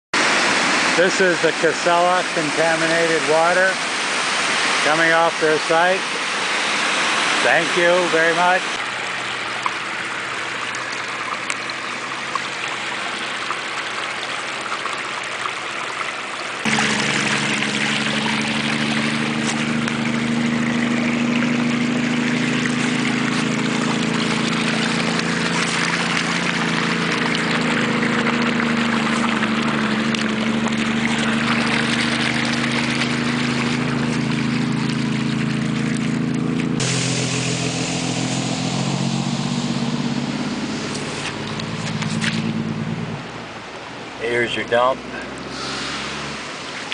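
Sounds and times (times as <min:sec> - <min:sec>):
low engine hum: 0:00.2 - 0:46.9
water trickling over stones: 0:00.2 - 0:46.9.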